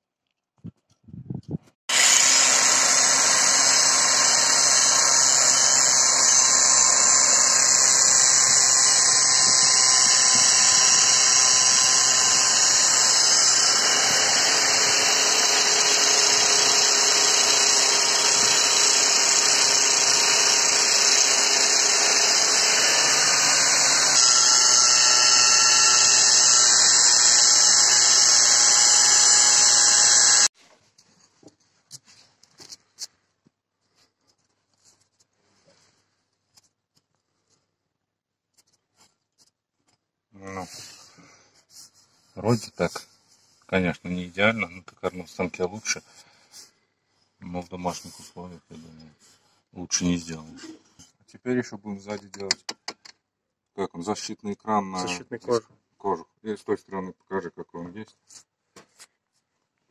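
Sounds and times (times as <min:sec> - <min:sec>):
angle grinder grinding metal: 0:01.9 - 0:30.5.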